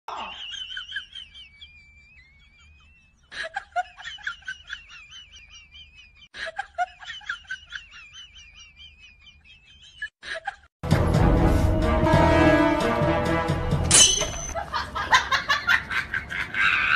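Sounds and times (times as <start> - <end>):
sped-up high-pitched giggle: 0.1 - 10.7.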